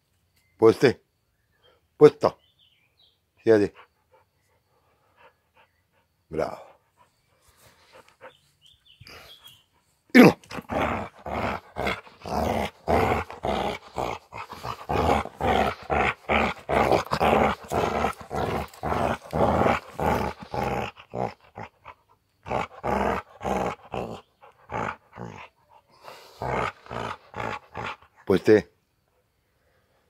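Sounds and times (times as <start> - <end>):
large dog play-growling: 10.2 - 28.2.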